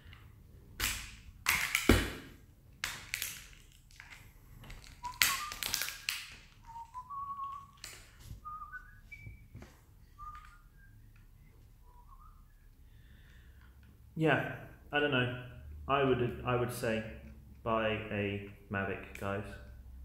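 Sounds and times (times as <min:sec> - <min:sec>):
plastic packaging crackling: 0:01.5 - 0:09.0
man whistling: 0:05.0 - 0:13.2.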